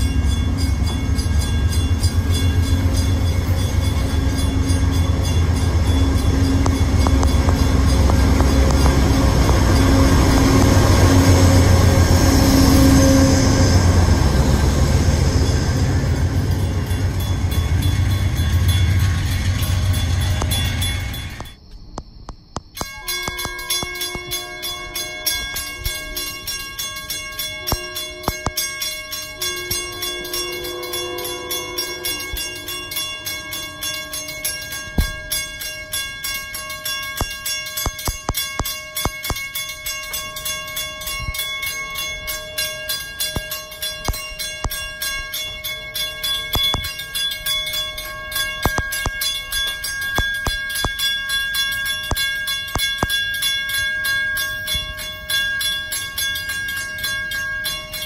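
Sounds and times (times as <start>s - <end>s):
distant train horn blasts: 0.0s - 21.5s, 22.8s - 36.8s
crossing warning bell ringing: 0.0s - 21.8s, 22.6s - 58.0s.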